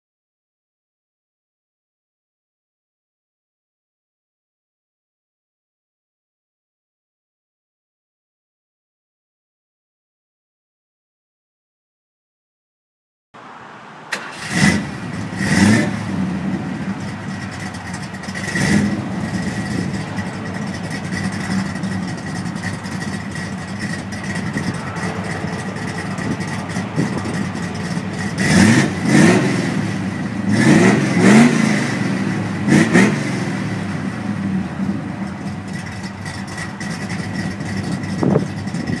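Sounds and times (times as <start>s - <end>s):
car engine revving: 14.1s - 39.0s.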